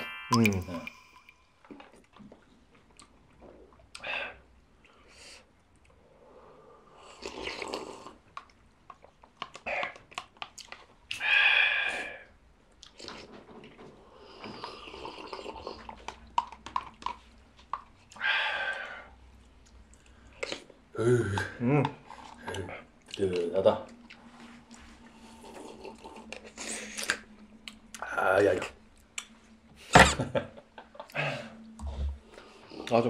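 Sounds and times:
people slurping soup: 3.5 - 8.3, 11.1 - 17.3, 25.0 - 27.3.

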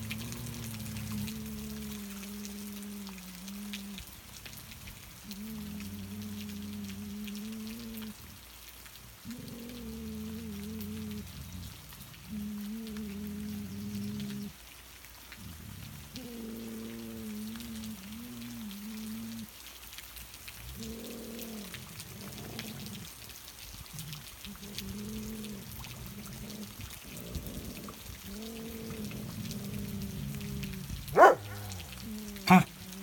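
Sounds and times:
dogs growling: 0.0 - 8.4, 9.0 - 14.6, 15.3 - 19.5, 20.5 - 33.0
sharp dog cry: 31.1 - 32.7.

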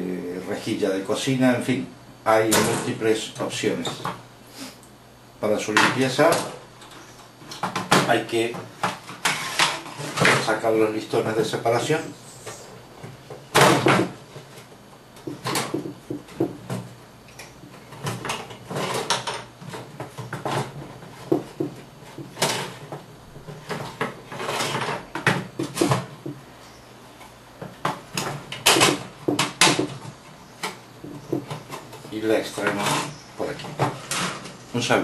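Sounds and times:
wood scraping against metal: 9.0 - 10.3, 22.1 - 26.0, 31.2 - 34.9.

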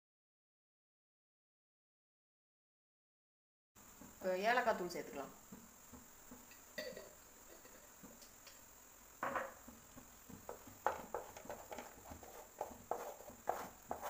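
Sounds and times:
wooden spatula scraping pan: 9.7 - 14.0.

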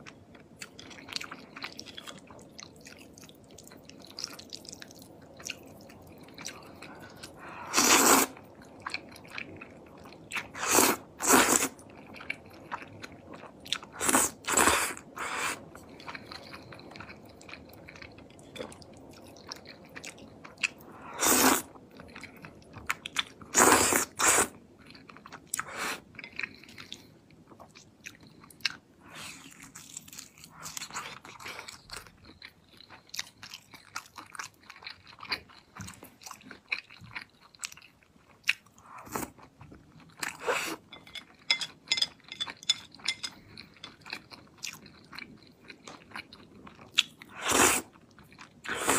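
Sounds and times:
noodle slurping: 7.7 - 8.4.

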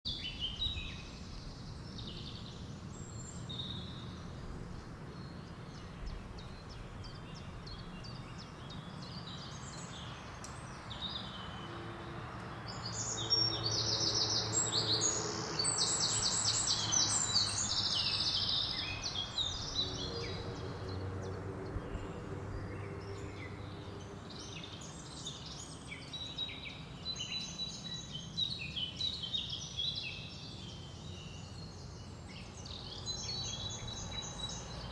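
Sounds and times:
small birds chirping and trilling: 0.1 - 34.9.

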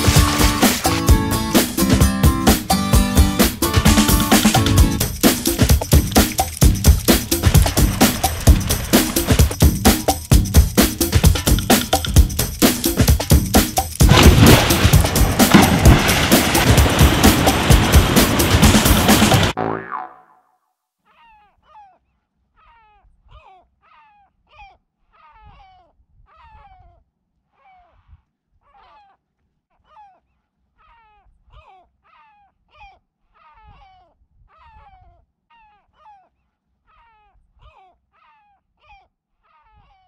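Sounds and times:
low rumble: 14.1 - 19.6.

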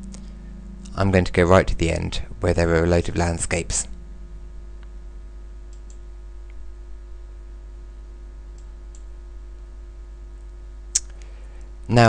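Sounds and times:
low electrical hum: 0.0 - 12.0
computer mouse clicks: 5.7 - 6.0.

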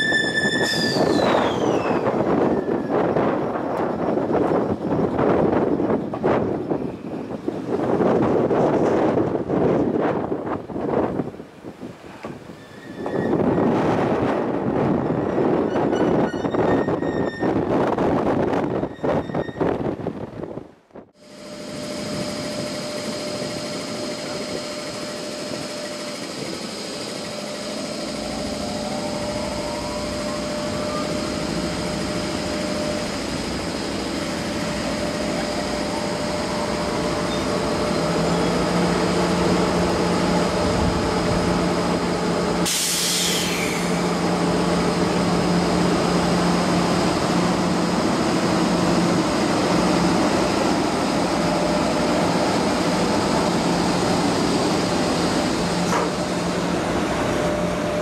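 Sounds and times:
electric locomotive running: 0.0 - 11.3, 21.2 - 58.0
hiss of air: 42.6 - 44.2.

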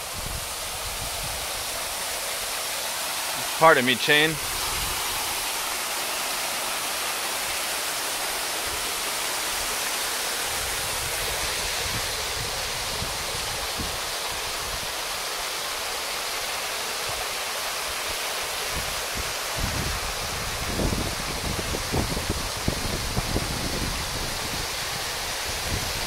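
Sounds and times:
steady rushing hiss: 0.0 - 26.0
wind buffeting microphone: 10.6 - 14.0, 18.8 - 26.0.

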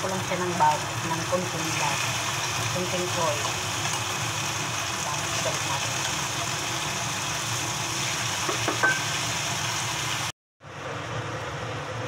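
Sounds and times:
food sizzling in a pan: 0.0 - 10.3
tongs clinking on pan: 8.5 - 9.2.

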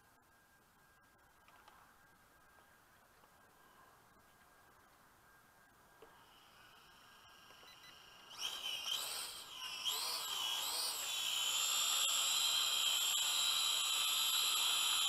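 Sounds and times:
toy drone motors whining: 6.0 - 15.0.

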